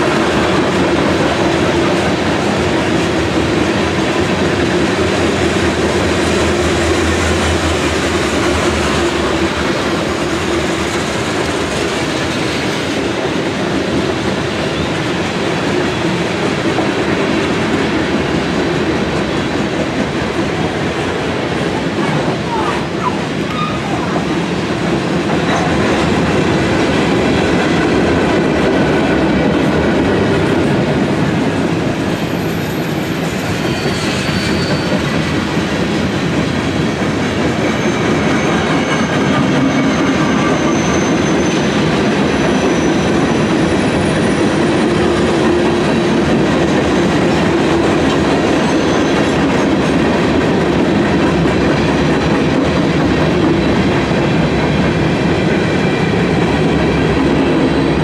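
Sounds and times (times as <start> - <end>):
train wheels rolling on rails: 0.0 - 58.0
high-pitched wheel squeals: 22.5 - 24.2, 32.2 - 35.1, 37.7 - 44.4.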